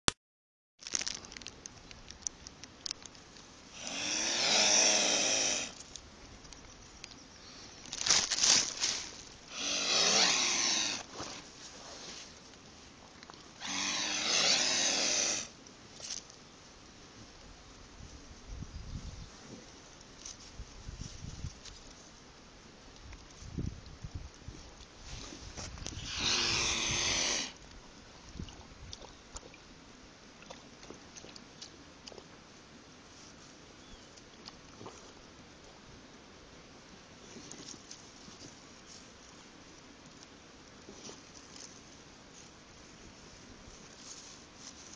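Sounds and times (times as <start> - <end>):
faint clicks and rustles: 0.8 - 3.6, 37.2 - 44.9
swan hissing: 3.7 - 5.8, 8.5 - 12.2, 13.6 - 15.6, 26.0 - 27.6.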